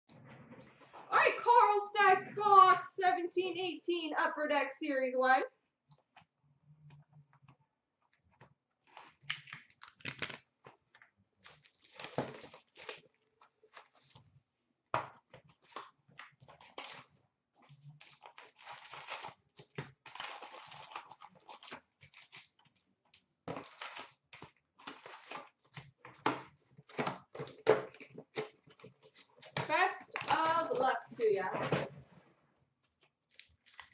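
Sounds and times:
plastic wrap crinkling and tearing: 0:08.4 - 0:14.2, 0:15.6 - 0:26.0, 0:32.8 - 0:33.9.

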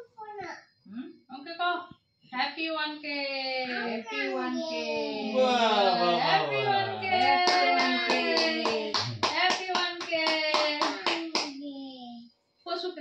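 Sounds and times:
people singing together: 0:05.3 - 0:11.0
people clapping in rhythm: 0:05.4 - 0:11.6.

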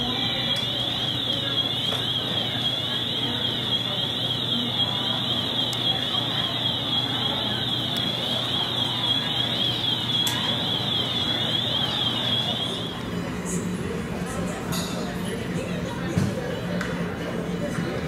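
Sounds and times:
airliner cabin hum: 0:00.0 - 0:13.1.

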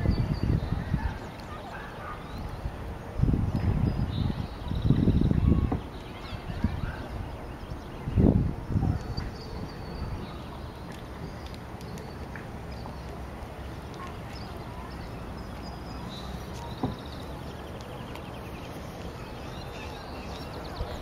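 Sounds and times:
wind on microphone: 0:00.0 - 0:10.9.

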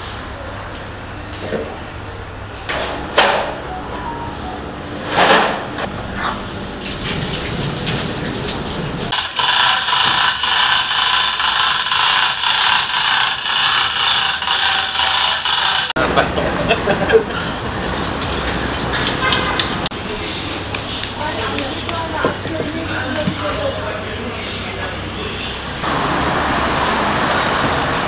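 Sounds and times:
hoist chain rattling: 0:09.1 - 0:15.9.

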